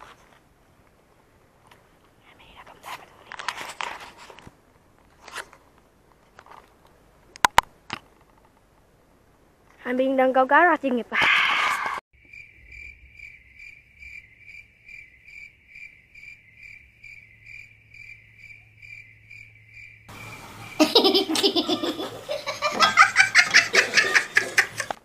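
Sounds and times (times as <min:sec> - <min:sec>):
giggling laughter: 0:20.7 - 0:25.0.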